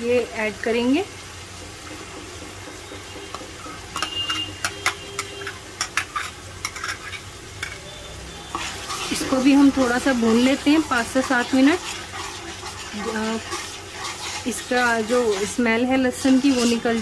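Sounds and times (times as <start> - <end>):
spices sizzling in hot oil: 0.0 - 17.0
steel ladle scraping ceramic bowl: 4.0 - 7.8, 8.5 - 17.0.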